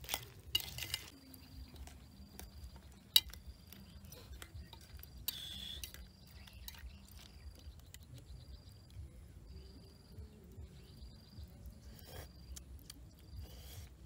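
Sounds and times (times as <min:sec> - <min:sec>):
metal spoon clinking and scraping pot: 0:00.0 - 0:08.2.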